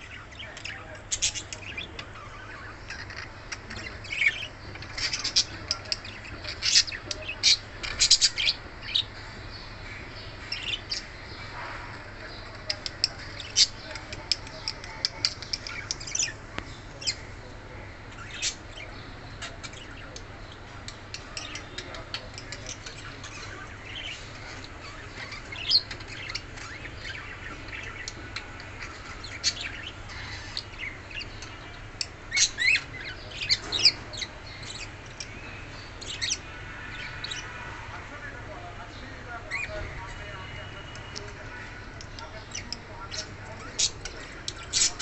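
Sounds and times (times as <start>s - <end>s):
budgerigars chirping: 0.0s - 45.0s.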